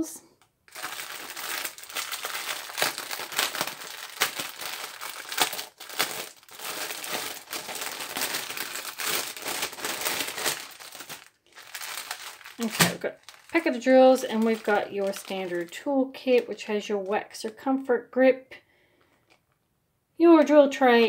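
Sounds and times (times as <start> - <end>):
plastic bag crinkling: 0.6 - 16.8.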